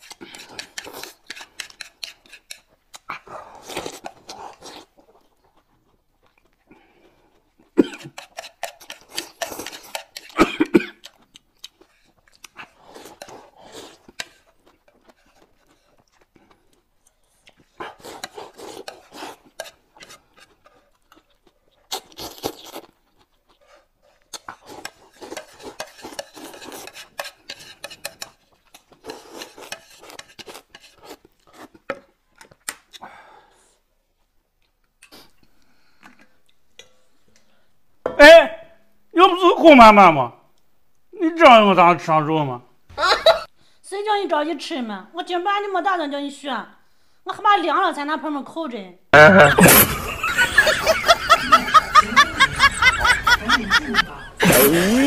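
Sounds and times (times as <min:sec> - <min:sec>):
noodles slurped and chewed: 0:00.0 - 0:36.6.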